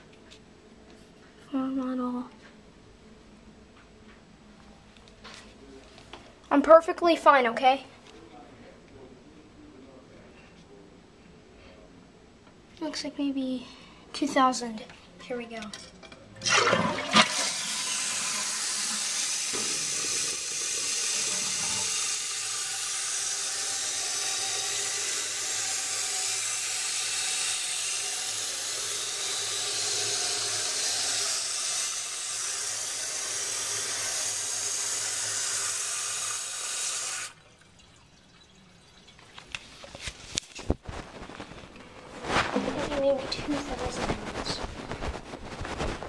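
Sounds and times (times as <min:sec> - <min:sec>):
toilet flushing and refilling: 0:16.4 - 0:40.1.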